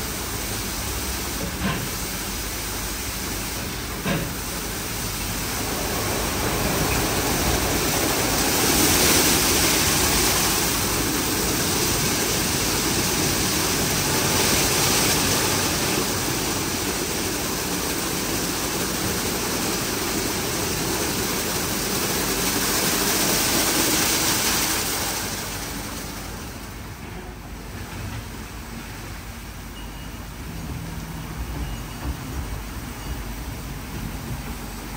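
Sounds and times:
water spraying onto car: 0:00.0 - 0:27.0.

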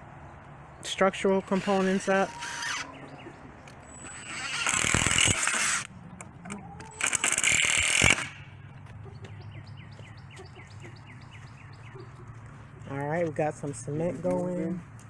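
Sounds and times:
cordless drill driving screws: 0:01.4 - 0:02.9, 0:03.8 - 0:05.9, 0:06.9 - 0:08.4.

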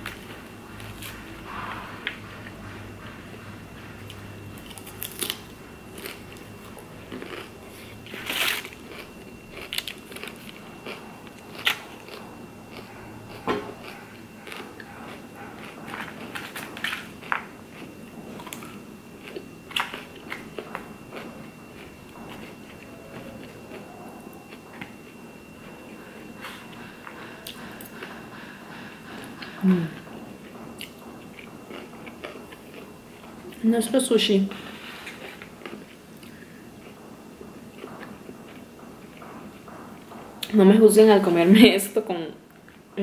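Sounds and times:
chewing and crunching food: 0:04.0 - 0:28.4, 0:29.1 - 0:33.6, 0:34.5 - 0:40.5.

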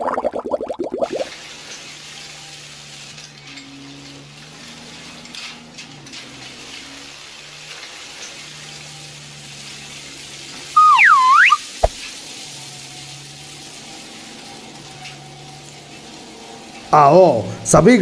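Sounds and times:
swooping whistle-like tone: 0:10.8 - 0:12.0.

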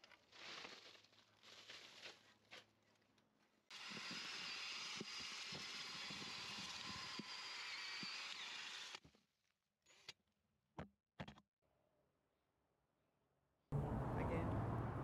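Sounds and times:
compost rustling: 0:00.0 - 0:03.0
cordless drill motor whine: 0:03.7 - 0:09.0.

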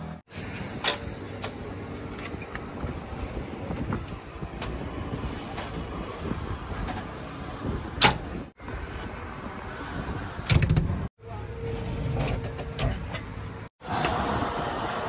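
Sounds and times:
cab door and step clicks: 0:08.0 - 0:08.3.

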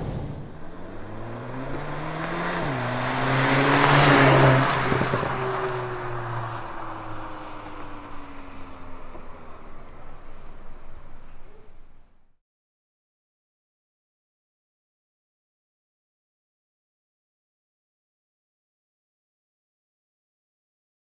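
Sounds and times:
car accelerating past: 0:00.0 - 0:11.1.

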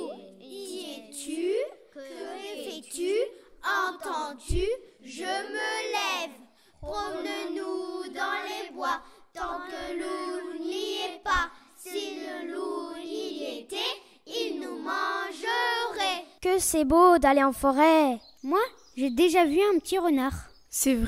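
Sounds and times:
children singing: 0:00.0 - 0:16.3.

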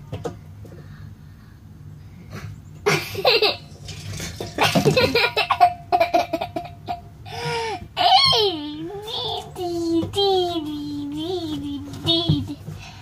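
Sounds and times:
boy laughing and giggling: 0:02.9 - 0:03.7, 0:04.5 - 0:09.7.

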